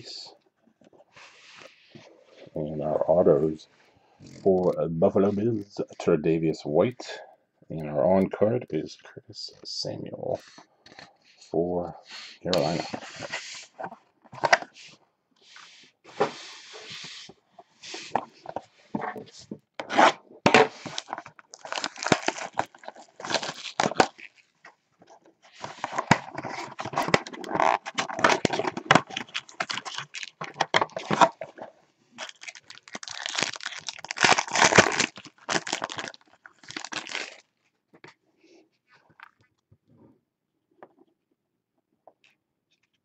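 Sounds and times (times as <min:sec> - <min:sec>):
cardboard box tearing and crinkling: 0:19.8 - 0:24.3, 0:25.7 - 0:31.5, 0:32.2 - 0:37.4.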